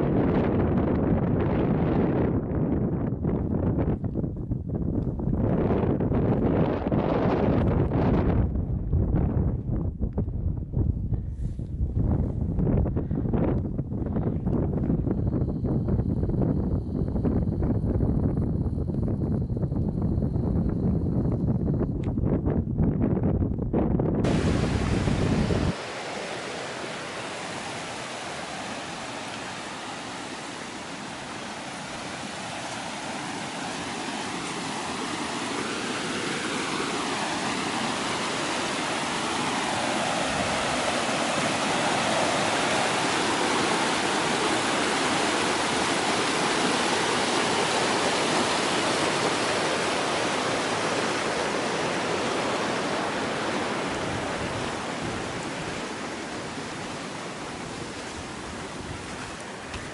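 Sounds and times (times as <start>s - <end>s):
river rushing over rapids: 24.2s - 59.9s.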